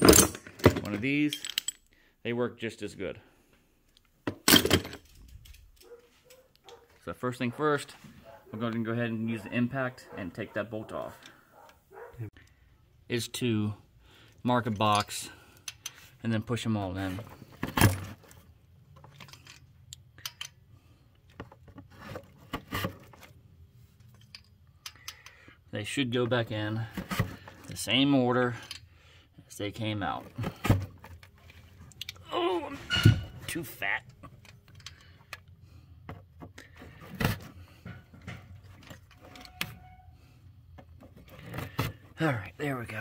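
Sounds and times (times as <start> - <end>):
metal parts clicking and scraping: 0.0 - 2.0, 4.0 - 6.8, 14.3 - 16.2, 17.2 - 22.3, 23.0 - 25.5, 28.5 - 28.9, 32.9 - 35.6, 36.6 - 40.2
metal tools clinking: 0.0 - 2.0, 4.4 - 6.8, 14.6 - 16.0, 17.6 - 20.6, 24.0 - 25.4, 37.8 - 40.2.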